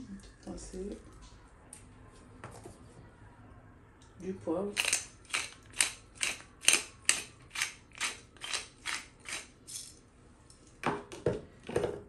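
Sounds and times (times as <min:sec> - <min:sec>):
pepper mill grinding: 0:04.8 - 0:10.0.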